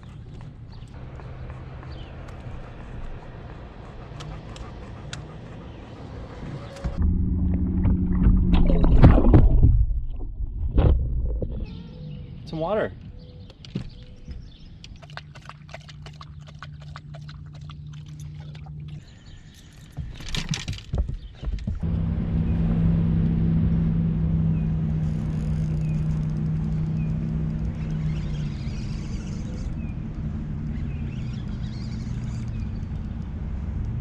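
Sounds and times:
birds chirping: 0:00.0 - 0:07.0, 0:11.6 - 0:21.8, 0:24.4 - 0:33.5
low engine hum: 0:00.0 - 0:12.4, 0:13.0 - 0:34.0.

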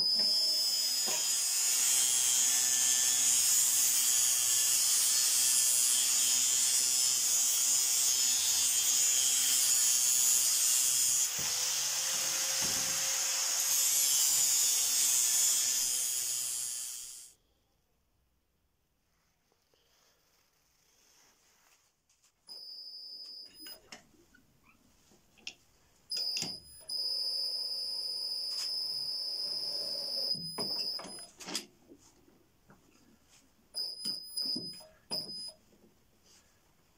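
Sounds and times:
angle grinder on steel: 0:00.2 - 0:17.3.

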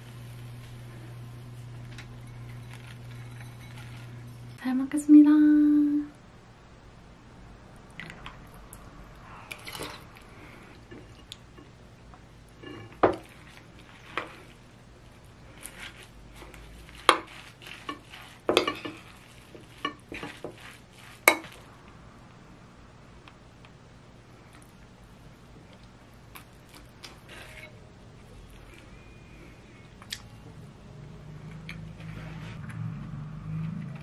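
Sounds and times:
spoon stirring food in bowl: 0:15.6 - 0:21.6.

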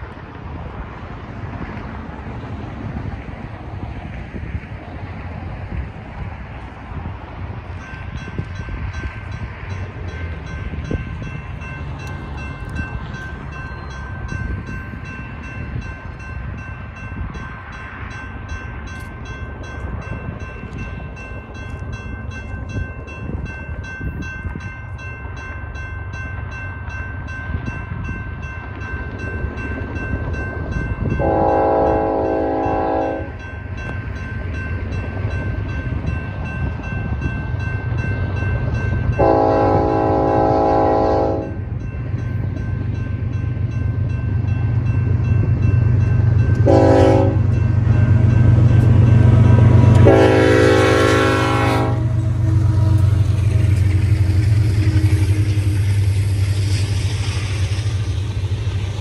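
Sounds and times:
locomotive rumble: 0:00.0 - 0:59.0
crossing bell ringing: 0:07.5 - 0:56.5
train horn blasts: 0:31.2 - 0:33.4, 0:39.1 - 0:41.6, 0:46.6 - 0:47.6, 0:49.3 - 0:55.8.

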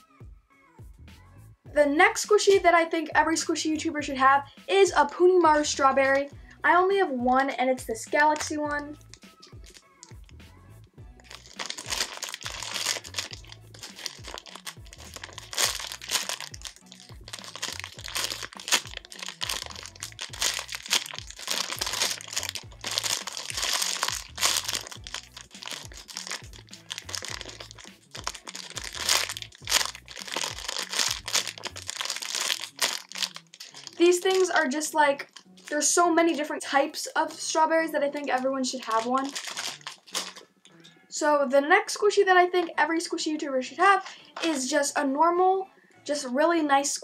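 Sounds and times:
background music with low beat: 0:00.0 - 0:46.7
plastic bag crinkling: 0:09.0 - 0:10.2, 0:11.2 - 0:35.8, 0:38.2 - 0:40.6.

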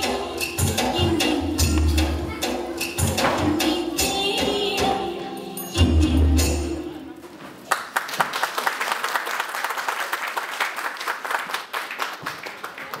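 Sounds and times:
dance music: 0:00.0 - 0:07.0
audience applauding: 0:07.6 - 0:13.0.

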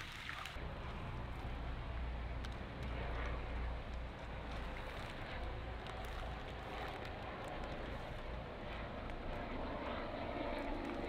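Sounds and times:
distant engine drone: 0:00.0 - 0:11.0
outdoor background noise: 0:00.0 - 0:11.0.

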